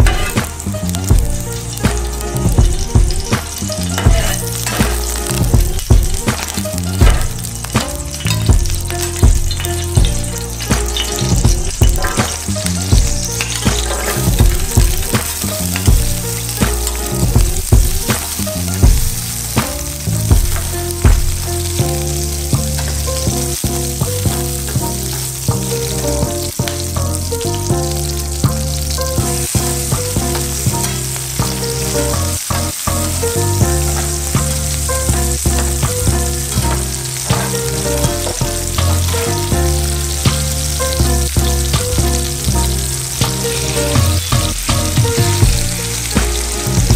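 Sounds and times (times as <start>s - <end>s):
vegetables sizzling in hot oil: 0.0s - 46.9s.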